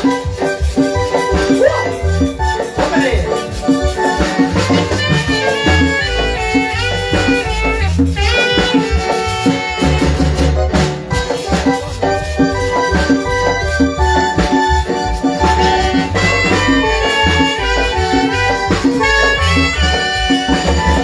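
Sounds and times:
drums: 0:00.0 - 0:21.0
marimba dance music: 0:00.0 - 0:21.0
steady bass beat: 0:00.0 - 0:21.0.

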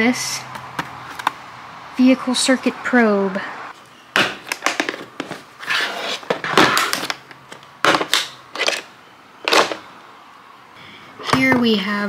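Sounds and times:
plastic scraping: 0:04.4 - 0:09.8.

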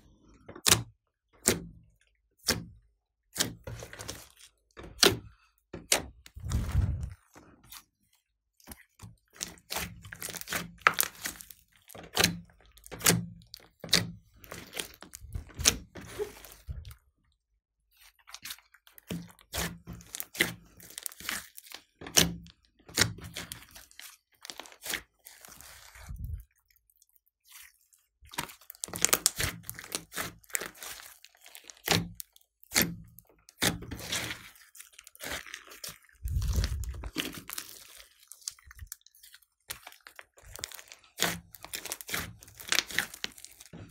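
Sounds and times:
wet squelches of slime: 0:00.1 - 0:43.9
slime clicking and popping: 0:28.3 - 0:43.8.

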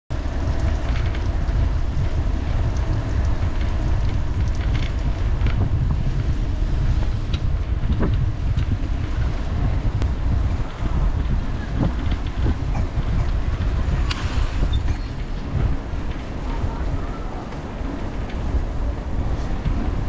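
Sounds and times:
bicycle tyres on asphalt: 0:00.1 - 0:20.0
wind rumble on microphone: 0:00.1 - 0:20.0
light ticks from bike: 0:00.2 - 0:06.2.

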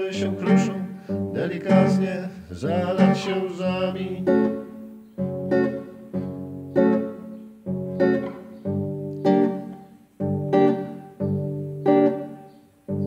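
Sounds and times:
strummed acoustic guitar chords: 0:00.0 - 0:13.0.

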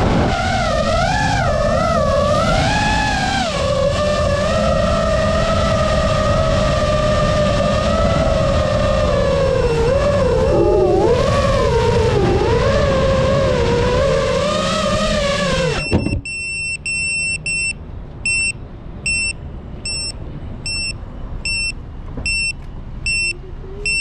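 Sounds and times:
quadcopter motors whining: 0:00.0 - 0:16.2
high electronic beeps: 0:15.8 - 0:24.0.

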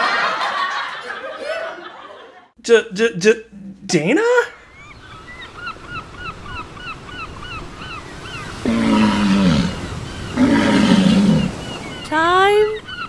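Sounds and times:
long rough animal calls: 0:08.5 - 0:11.8.

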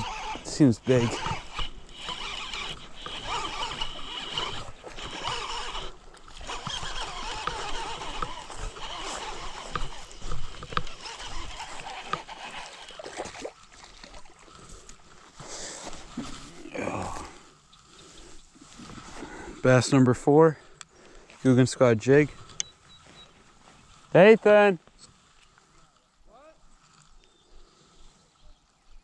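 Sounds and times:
water splashing: 0:00.0 - 0:15.4
fishing reel cranking: 0:00.0 - 0:15.6.

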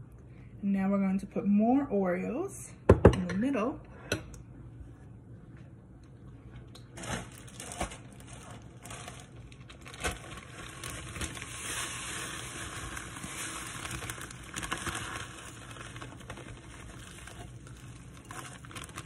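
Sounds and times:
plastic bag crinkling: 0:06.9 - 0:19.0.

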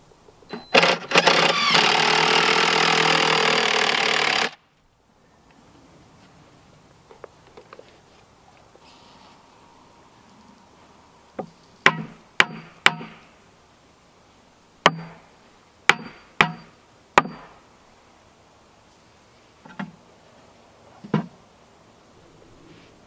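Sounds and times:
hammer striking wooden form: 0:11.8 - 0:13.2, 0:14.8 - 0:15.2, 0:15.9 - 0:17.6.

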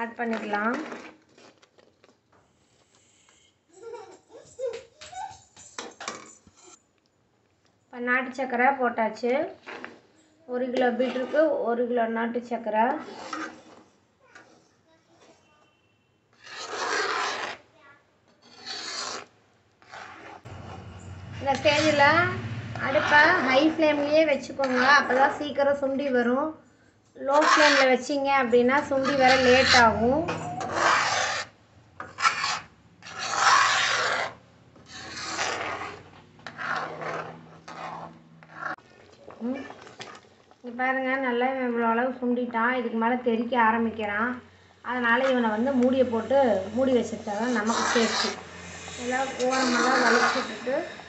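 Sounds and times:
wooden spoon scraping iron pan: 0:10.7 - 0:11.6, 0:12.9 - 0:15.4, 0:16.4 - 0:17.7, 0:18.4 - 0:25.9, 0:27.3 - 0:40.2, 0:46.9 - 0:51.0.

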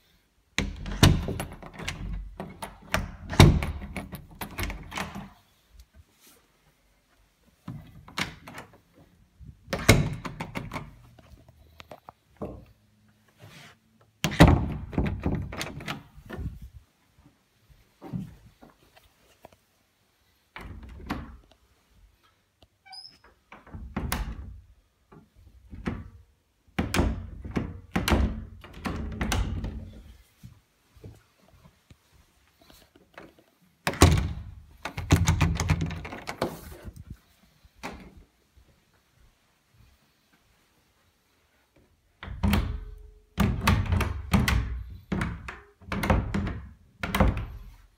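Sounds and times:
door knob and latch clicks: 0:09.7 - 0:11.0.

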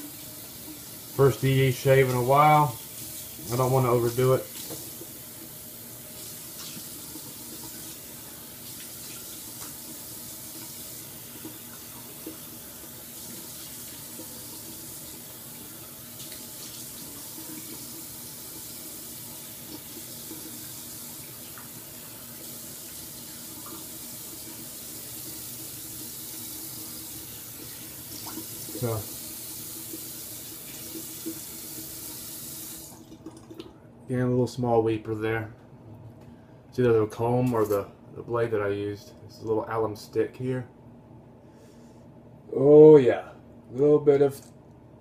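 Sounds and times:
sink tap running: 0:00.0 - 0:33.7.

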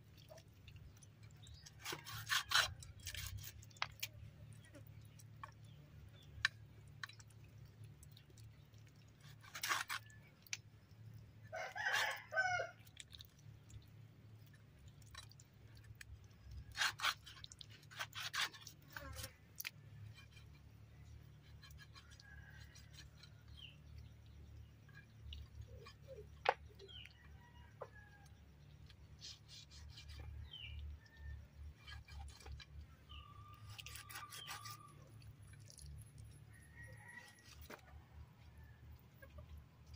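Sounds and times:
cleaver cutting meat and bone: 0:00.1 - 0:07.6, 0:08.3 - 0:10.7, 0:11.5 - 0:13.3, 0:15.0 - 0:27.1, 0:28.8 - 0:30.9, 0:31.5 - 0:36.3
rooster crowing: 0:11.5 - 0:12.8
faint chicken calls: 0:11.5 - 0:13.1, 0:21.3 - 0:24.3, 0:25.0 - 0:32.2, 0:36.3 - 0:39.9.

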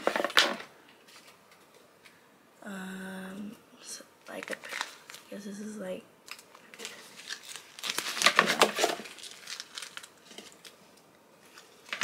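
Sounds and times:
paper packaging crinkling: 0:04.3 - 0:05.4, 0:06.3 - 0:12.0.

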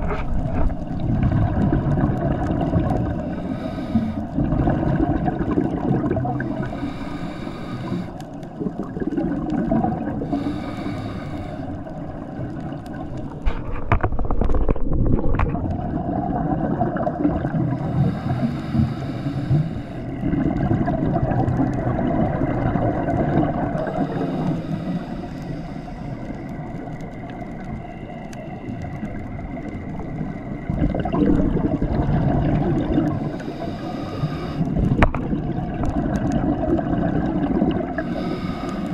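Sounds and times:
exhaled bubbles gurgling: 0:00.0 - 0:38.9
low rumble of water: 0:00.0 - 0:38.9
diver breathing through regulator: 0:03.0 - 0:04.6, 0:06.4 - 0:08.4, 0:10.2 - 0:12.2, 0:17.7 - 0:20.4, 0:23.8 - 0:26.8, 0:33.0 - 0:35.1, 0:37.9 - 0:38.9.

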